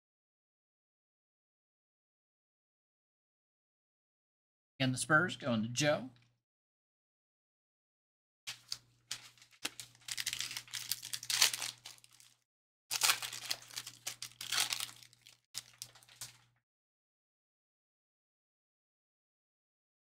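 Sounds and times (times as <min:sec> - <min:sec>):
plastic wrappers tearing and crinkling: 0:08.5 - 0:16.5.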